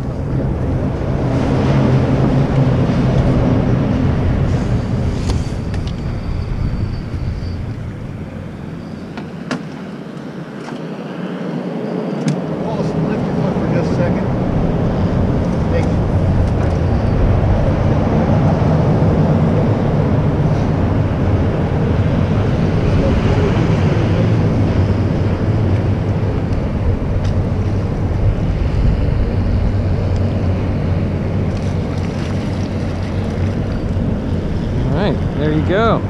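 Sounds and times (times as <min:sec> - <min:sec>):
wind rumble on microphone: 0:00.0 - 0:36.0
water washing around boat: 0:30.6 - 0:35.9.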